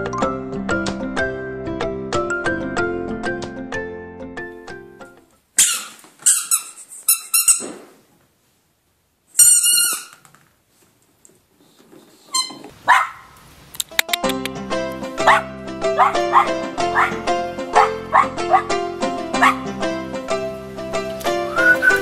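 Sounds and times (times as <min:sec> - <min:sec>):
rubber toy squeaking: 0:05.6 - 0:07.9, 0:09.4 - 0:10.4, 0:12.3 - 0:12.7.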